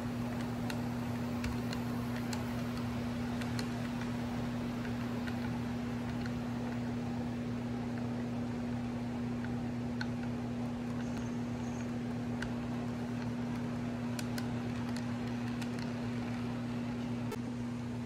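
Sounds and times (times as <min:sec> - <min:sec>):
model train wheels clicking: 0:00.0 - 0:07.0, 0:09.4 - 0:16.4
low electrical hum: 0:00.0 - 0:18.0.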